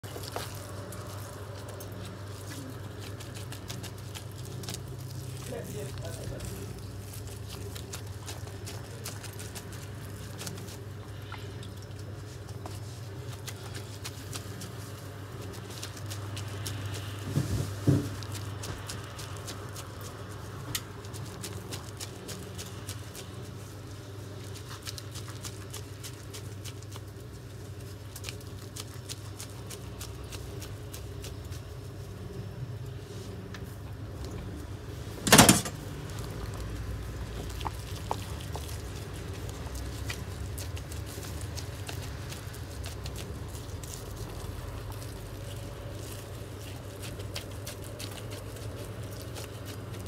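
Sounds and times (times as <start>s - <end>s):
steady low hum: 0.0s - 50.0s
wet meat squelching: 0.0s - 50.0s.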